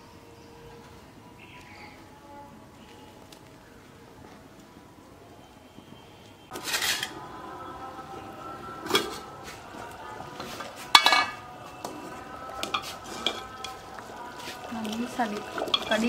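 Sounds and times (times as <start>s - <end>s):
steel lid clinking on clay pot: 10.9s - 11.4s, 15.6s - 16.0s.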